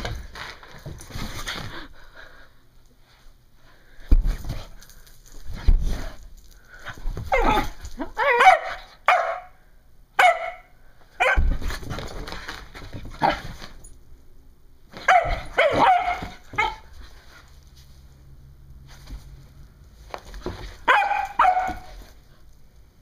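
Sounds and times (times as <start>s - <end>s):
rustling: 2.9s - 8.3s, 11.4s - 14.0s, 14.9s - 23.0s
puppy barking and yipping: 7.3s - 9.6s, 10.2s - 11.5s, 15.0s - 16.9s, 20.8s - 22.1s.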